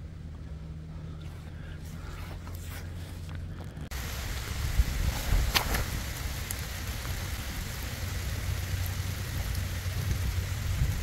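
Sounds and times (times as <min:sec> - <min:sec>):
wind buffeting microphone: 0:03.8 - 0:11.0.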